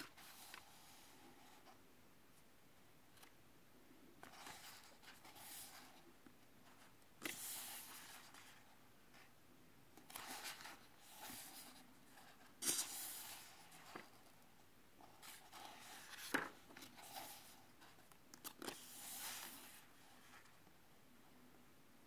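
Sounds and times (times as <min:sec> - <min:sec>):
book pages turning: 0:00.0 - 0:01.6, 0:06.7 - 0:09.3, 0:10.0 - 0:14.3, 0:15.0 - 0:20.6.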